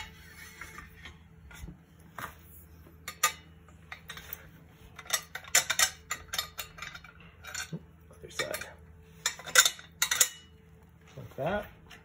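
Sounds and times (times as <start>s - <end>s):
metal bolt rubbing and clinking: 3.0s - 10.6s.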